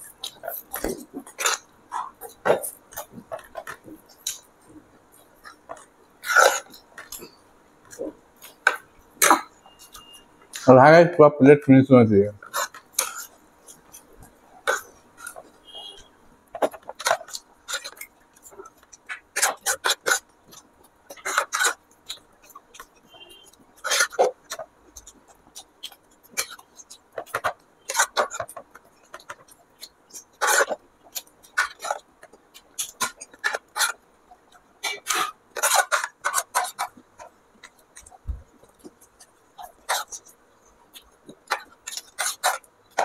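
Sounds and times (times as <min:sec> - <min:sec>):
crisp shells crunching and chewing: 0:16.5 - 0:43.0.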